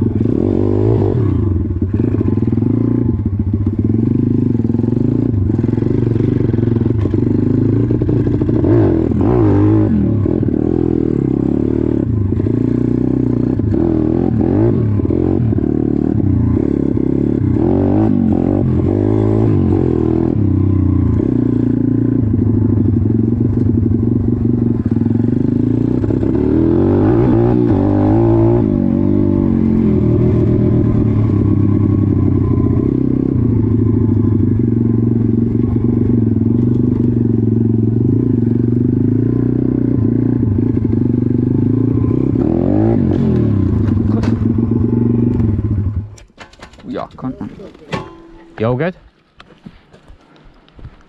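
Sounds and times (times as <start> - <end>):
bike rattling on rough ground: 43.1 - 51.0.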